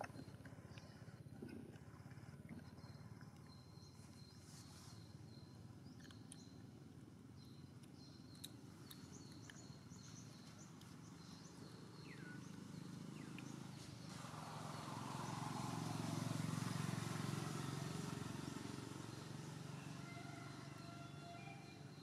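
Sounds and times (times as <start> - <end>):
faint high bird chirps: 0.0 - 15.4.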